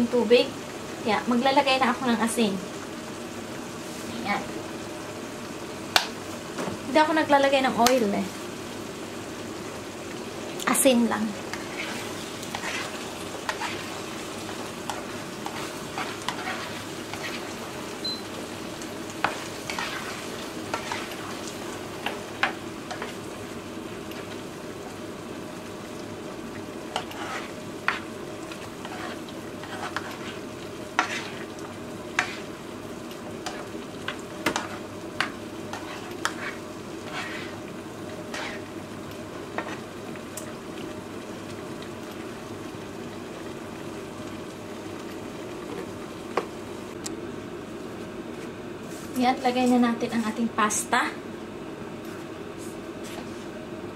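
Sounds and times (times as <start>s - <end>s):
sauce sizzling in a frying pan: 0.0s - 53.5s
spatula scraping and tapping pan: 11.5s - 17.6s, 19.2s - 21.4s, 22.0s - 23.2s, 26.9s - 30.4s, 31.0s - 32.5s, 33.4s - 37.6s, 38.3s - 38.7s, 39.6s - 39.9s.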